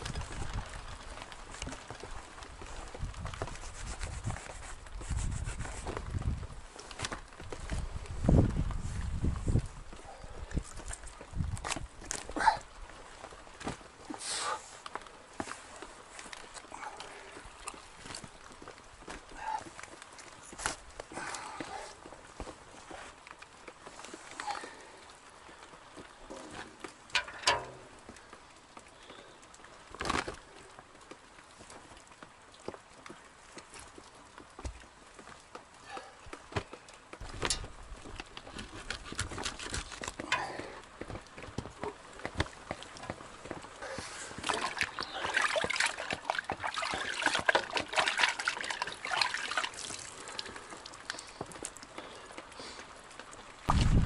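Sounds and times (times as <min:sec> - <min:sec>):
water dripping: 0:09.4 - 0:38.9, 0:39.5 - 0:53.8
metal bucket clanks: 0:27.1 - 0:27.9
bucket clattering: 0:27.1 - 0:28.0, 0:43.8 - 0:49.9.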